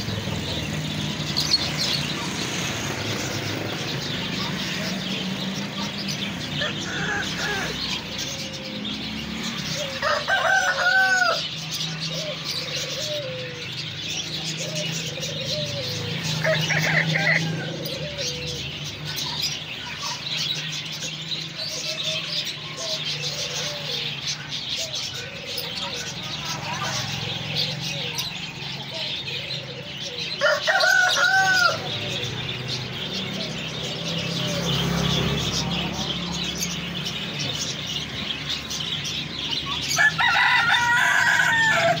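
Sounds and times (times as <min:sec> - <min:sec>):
small birds chirping: 0:00.0 - 0:42.0
rooster crowing: 0:06.6 - 0:08.0, 0:09.7 - 0:11.6, 0:16.2 - 0:18.4, 0:30.4 - 0:32.1, 0:39.8 - 0:42.0.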